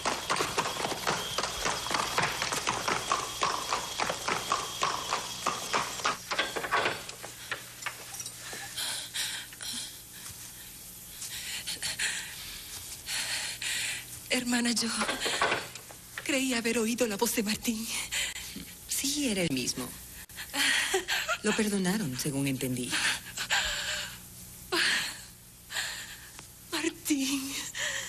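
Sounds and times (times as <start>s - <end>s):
horse hooves clattering: 0.0s - 8.6s.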